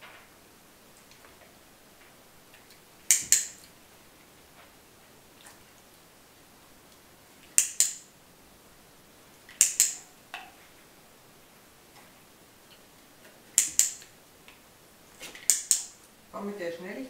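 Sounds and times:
dog-training clicker clicking: 3.1 - 3.6, 7.5 - 8.0, 9.5 - 10.1, 13.6 - 14.1, 15.4 - 16.0.

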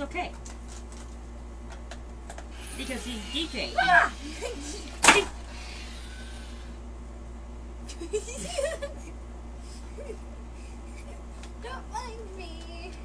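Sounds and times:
low hum: 1.2 - 13.0
person shrieking: 3.6 - 4.4.

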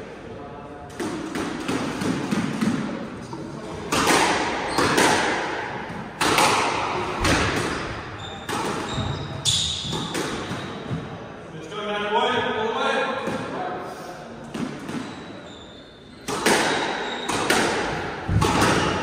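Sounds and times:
squash ball hits: 0.9 - 11.1, 16.2 - 19.0.

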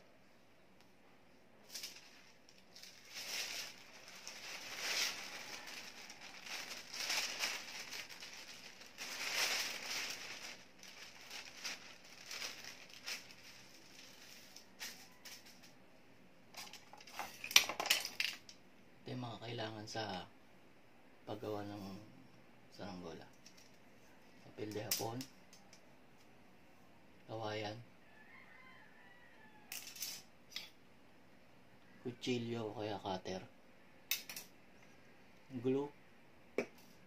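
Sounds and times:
kite sail rustling: 1.8 - 14.5.

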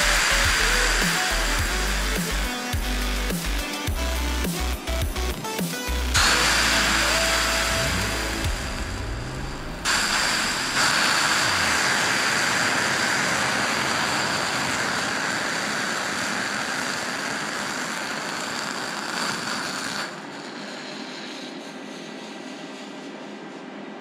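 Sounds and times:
water hissing on hot metal: 0.0 - 3.0, 6.2 - 8.9, 9.8 - 21.5.

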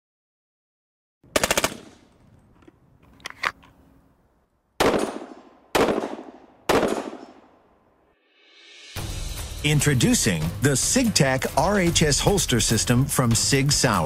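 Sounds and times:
heavy single gunshots echoing: 4.8 - 7.6.

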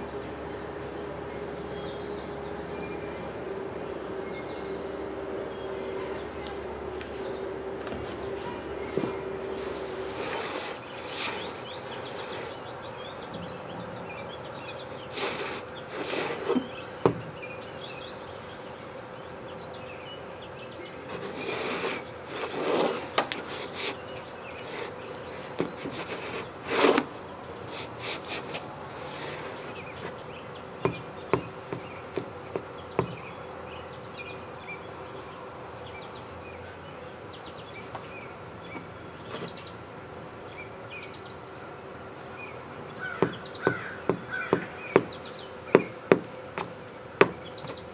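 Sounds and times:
sneaker footsteps on wooden deck: 25.5 - 27.1, 30.8 - 33.3.

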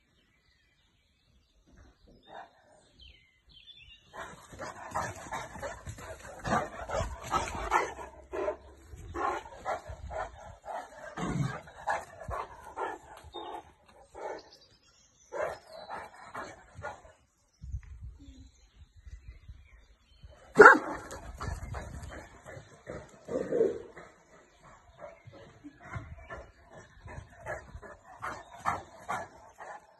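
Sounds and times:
large dog barking: 4.1 - 14.5, 20.5 - 22.2.

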